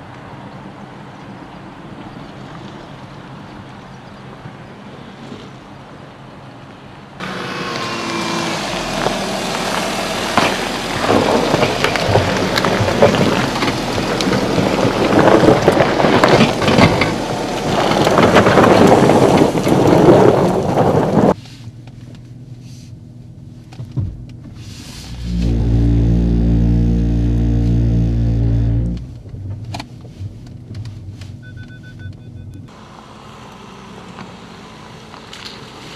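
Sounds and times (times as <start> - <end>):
engine pulling under load: 7.2 - 21.4, 23.7 - 31.2, 32.7 - 35.9
tyres crunching on gravel: 7.2 - 21.4
low engine hum: 7.2 - 35.9.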